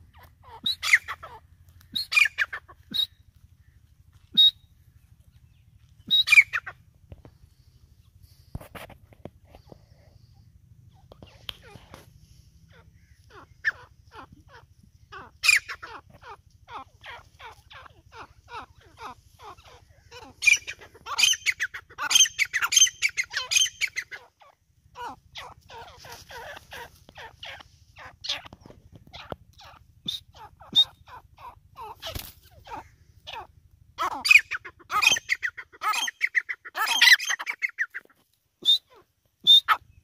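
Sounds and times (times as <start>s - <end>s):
francolin calling: 0.0s - 8.2s, 9.6s - 40.0s
faint low hum: 0.0s - 40.0s.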